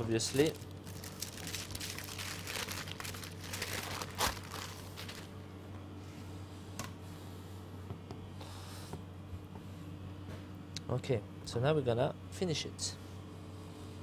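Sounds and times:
baking parchment rustling and crinkling: 0:00.0 - 0:05.4
faint hum: 0:00.0 - 0:14.0.

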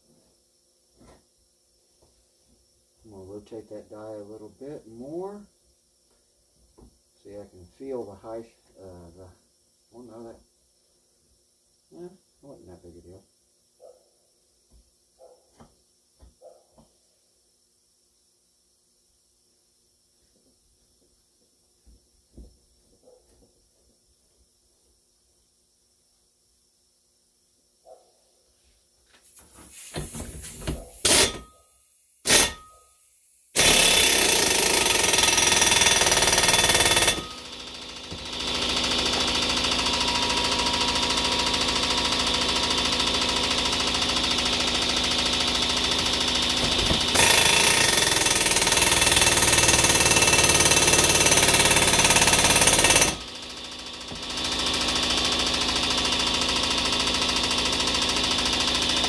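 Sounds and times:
air impact wrench hammering: 0:29.5 - 0:32.9, 0:33.5 - 0:59.0.

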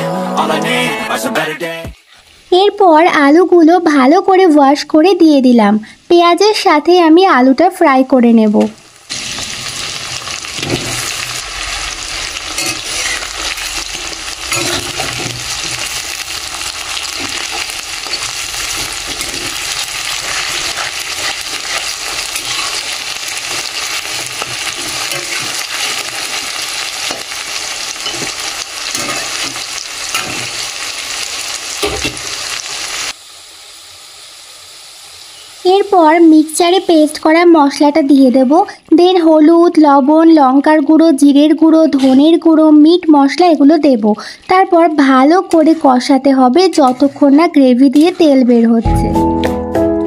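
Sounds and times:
potatoes sizzling in hot oil: 0:02.2 - 0:48.9
metal spatula scraping pan: 0:10.5 - 0:16.1, 0:17.0 - 0:27.3, 0:28.0 - 0:30.6.

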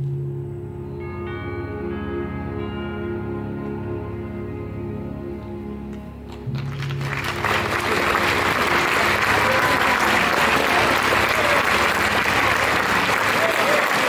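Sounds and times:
orchestral notes: 0:00.0 - 0:14.0
audience applause: 0:06.4 - 0:14.0.

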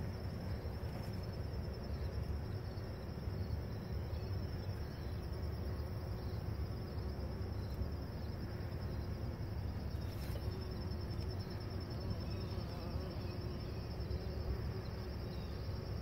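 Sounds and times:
high insect trill: 0:00.0 - 0:16.0
low outdoor hum: 0:00.0 - 0:16.0
bee buzzing: 0:05.6 - 0:16.0.

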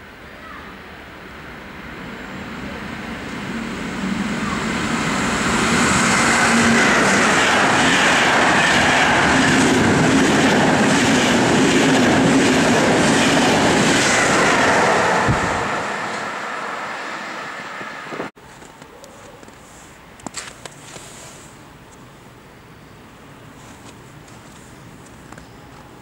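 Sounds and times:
passenger train passing: 0:00.0 - 0:18.4.

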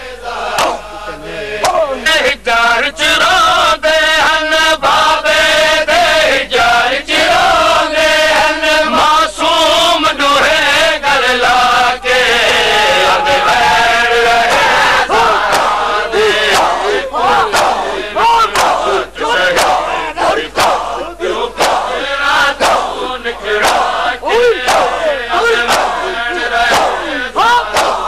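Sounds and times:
men chanting in unison: 0:00.0 - 0:28.0
hands slapping chests: 0:00.5 - 0:00.8, 0:01.6 - 0:01.8, 0:15.4 - 0:15.8, 0:16.5 - 0:16.9, 0:17.5 - 0:17.9, 0:18.5 - 0:19.8, 0:20.5 - 0:22.0, 0:22.6 - 0:23.0, 0:23.6 - 0:27.1, 0:27.7 - 0:28.0.

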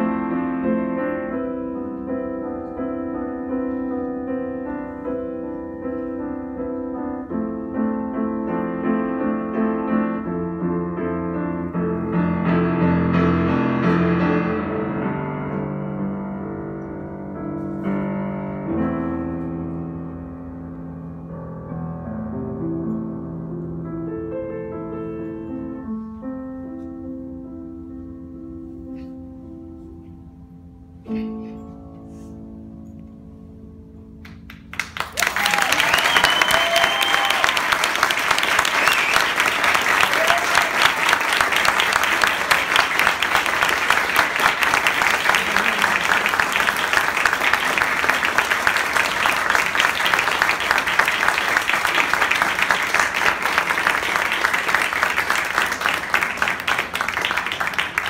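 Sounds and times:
audience applause: 0:34.5 - 0:58.0.

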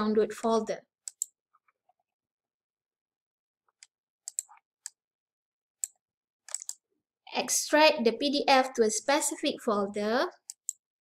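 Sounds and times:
computer mouse clicking: 0:01.0 - 0:01.4, 0:03.7 - 0:05.0, 0:05.8 - 0:06.8, 0:10.4 - 0:10.8.

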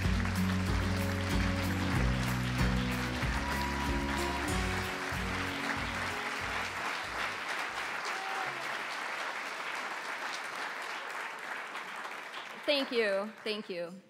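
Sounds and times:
music: 0:00.0 - 0:07.4
audience applauding: 0:00.0 - 0:13.9.

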